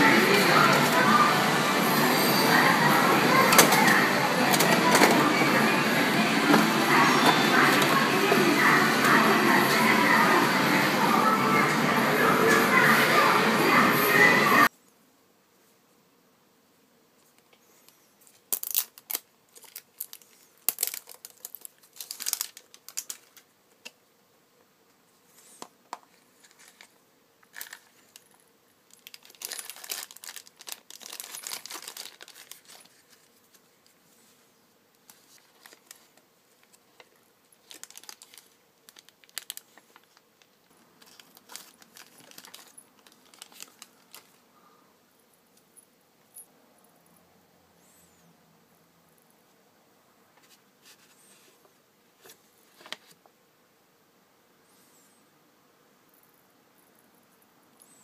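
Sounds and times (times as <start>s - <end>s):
plastic bag crinkling: 18.3s - 23.5s, 26.3s - 33.6s, 35.0s - 44.4s.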